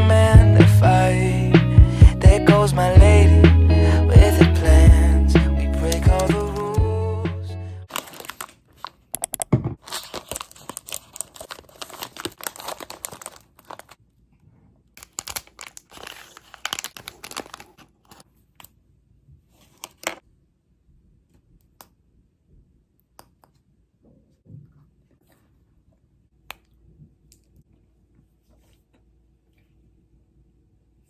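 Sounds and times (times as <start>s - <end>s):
background music: 0.0s - 7.9s
plastic wrapper crinkling: 5.8s - 6.8s, 7.9s - 14.0s, 15.0s - 18.3s, 19.6s - 20.2s.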